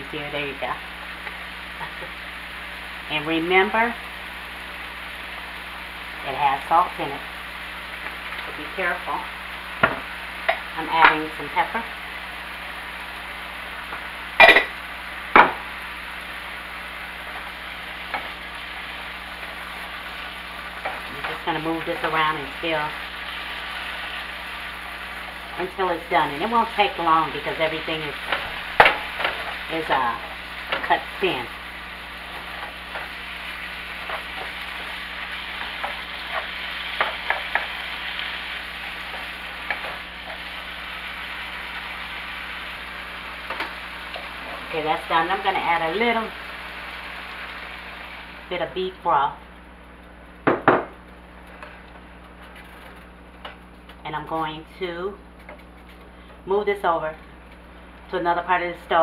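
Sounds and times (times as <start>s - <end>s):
meat sizzling in a skillet: 0.0s - 48.9s
utensils knocking on pan: 28.2s - 29.5s, 35.6s - 37.8s, 50.4s - 51.0s.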